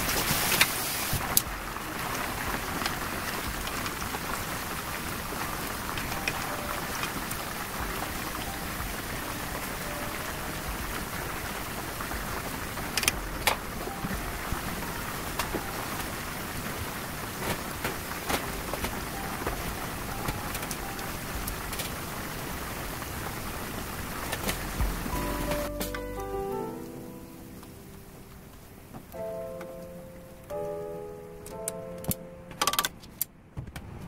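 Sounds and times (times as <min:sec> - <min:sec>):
chicken deep-frying in oil: 0:00.0 - 0:25.6.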